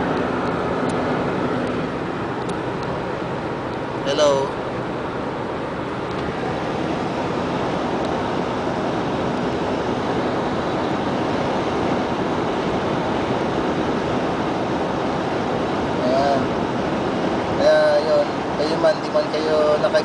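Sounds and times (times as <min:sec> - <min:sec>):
road and wind noise in car: 0:00.0 - 0:20.0.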